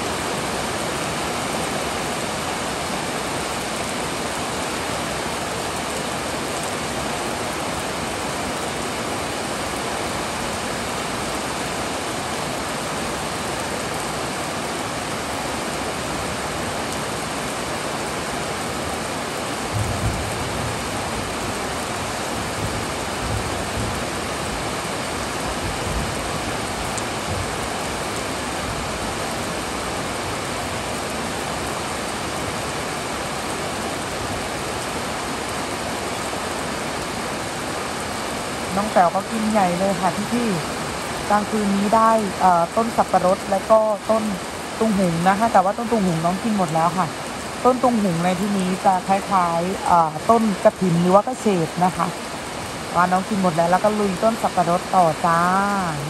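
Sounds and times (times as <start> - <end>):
heavy rain pouring: 0.0 - 56.0
low rumbles: 19.7 - 27.8.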